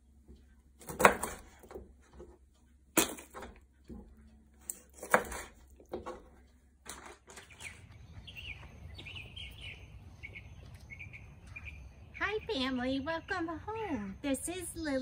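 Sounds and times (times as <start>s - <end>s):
low outdoor background noise: 0.0s - 15.0s
knife chopping on cutting board: 0.8s - 1.9s, 4.9s - 6.2s
birds chirping: 6.4s - 15.0s.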